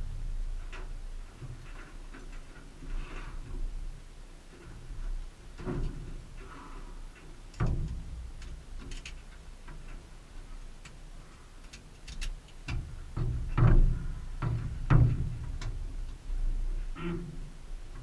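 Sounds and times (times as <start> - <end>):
dull knocks on controls: 12.7 - 15.7.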